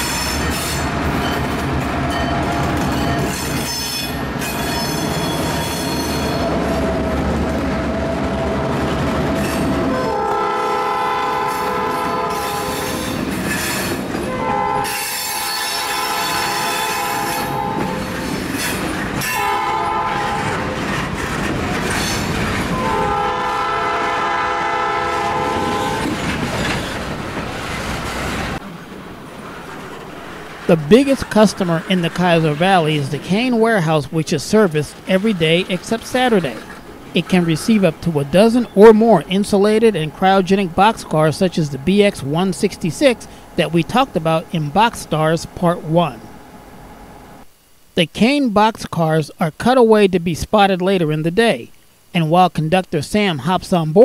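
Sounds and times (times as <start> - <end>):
wheel squeal on rails: 0.0 - 6.8, 11.4 - 19.6
diesel locomotives rumbling: 0.0 - 47.5
locomotive air horn blasts: 9.8 - 13.1, 14.2 - 18.2, 19.2 - 20.7, 22.7 - 26.2.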